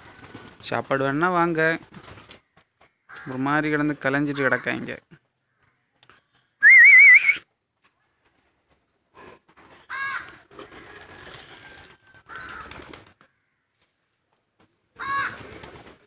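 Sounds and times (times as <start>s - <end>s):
loud warbling whistle: 6.6s - 7.4s
pigeons scuffling: 7.8s - 16.0s.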